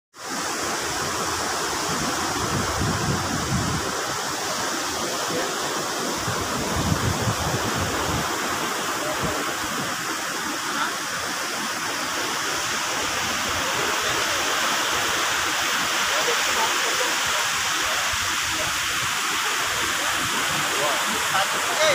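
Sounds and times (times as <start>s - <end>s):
sea wind and surf: 0.2s - 21.9s
wind buffeting microphone: 0.8s - 10.3s.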